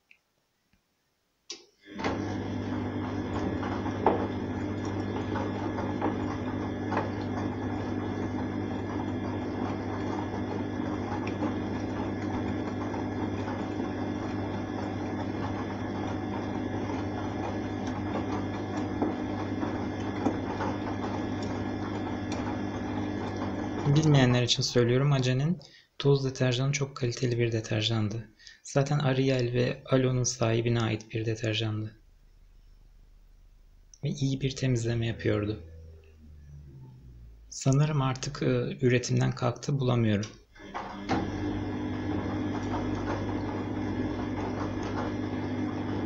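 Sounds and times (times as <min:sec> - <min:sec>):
washing machine motor hum: 0:01.8 - 0:46.0
laundry knocking in drum: 0:03.3 - 0:04.4.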